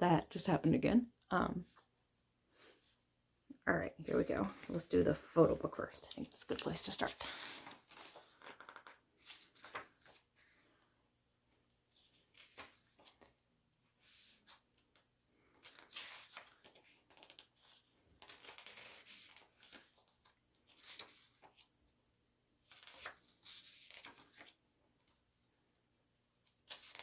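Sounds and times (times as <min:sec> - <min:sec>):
pages turning: 0:06.0 - 0:10.7, 0:11.7 - 0:13.4, 0:14.0 - 0:22.0, 0:22.6 - 0:25.2, 0:26.4 - 0:27.0.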